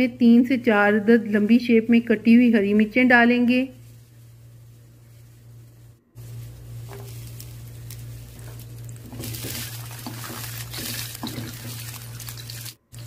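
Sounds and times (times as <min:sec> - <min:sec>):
steady low hum: 0:00.0 - 0:13.0
garlic sizzling in hot oil: 0:06.2 - 0:13.0.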